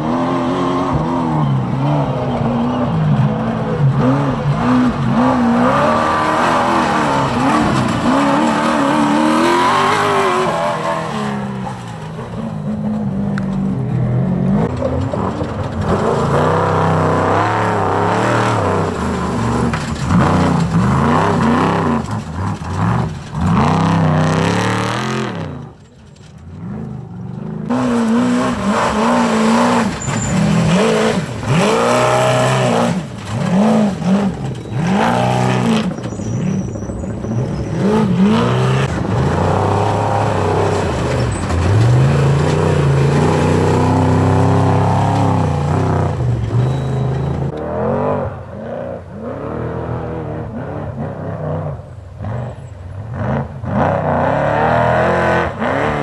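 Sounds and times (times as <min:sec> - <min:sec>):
truck engines racing past: 0:00.0 - 0:56.0.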